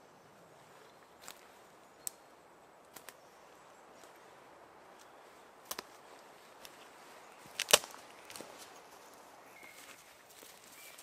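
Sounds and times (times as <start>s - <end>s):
footsteps snapping dry twigs: 1.2s - 3.2s, 4.9s - 11.0s.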